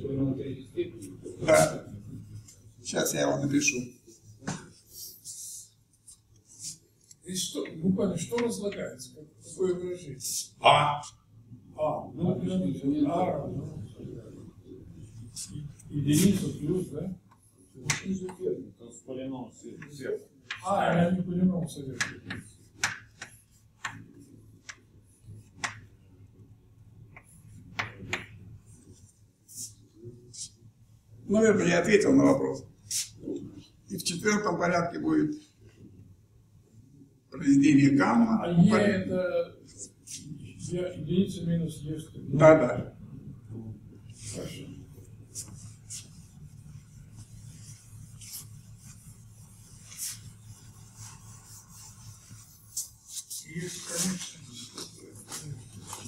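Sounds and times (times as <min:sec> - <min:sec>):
chalk tapping on blackboard: 0:17.8 - 0:18.4, 0:19.8 - 0:20.7, 0:21.9 - 0:25.9, 0:27.1 - 0:28.4
sponge wiping chalkboard: 0:21.6 - 0:26.0, 0:44.1 - 0:56.0.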